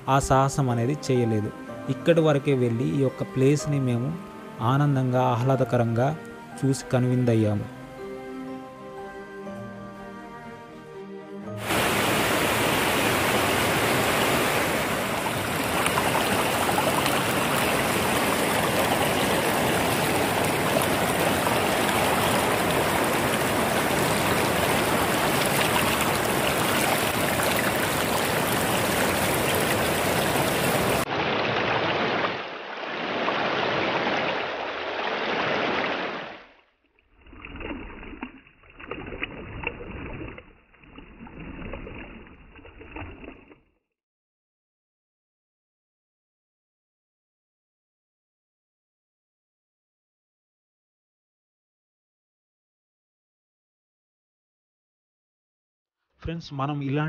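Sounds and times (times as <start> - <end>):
stream rushing over rocks: 11.6 - 36.5.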